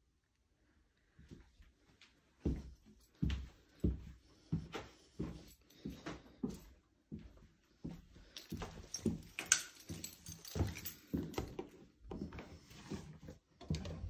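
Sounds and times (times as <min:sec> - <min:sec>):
footsteps on laminate floor: 0:02.4 - 0:14.0.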